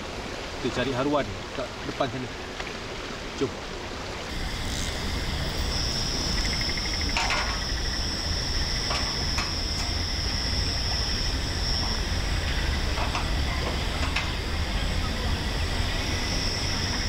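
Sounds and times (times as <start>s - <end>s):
high-pitched insect drone: 4.3s - 17.0s
low rumble: 4.3s - 17.0s.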